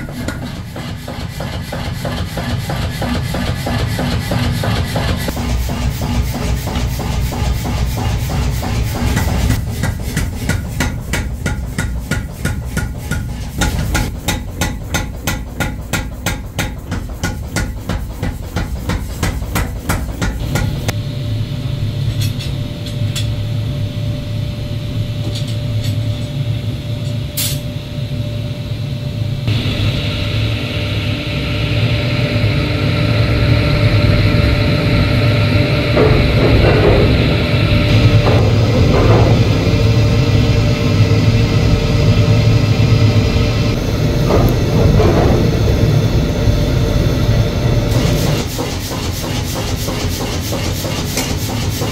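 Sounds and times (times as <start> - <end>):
hammering on metal: 0.0 - 20.9, 36.0 - 40.6
low hum: 20.4 - 48.5.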